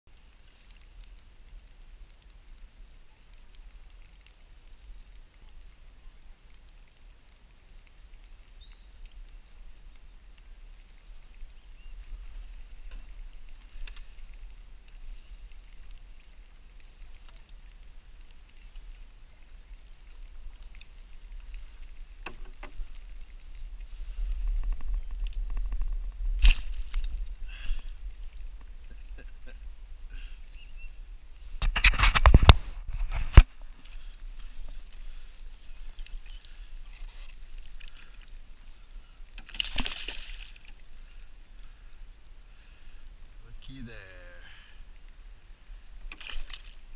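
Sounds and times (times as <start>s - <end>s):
faint scattered ticks: 0.1s - 46.9s
light water sounds: 0.1s - 46.9s
steady low rumble: 22.8s - 31.6s
fish splashing: 33.4s - 41.8s, 46.0s - 46.9s.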